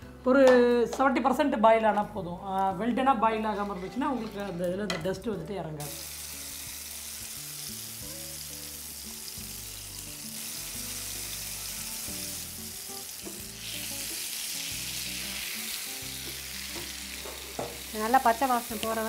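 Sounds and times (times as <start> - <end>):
paste sizzling in hot oil: 5.8 - 19.0.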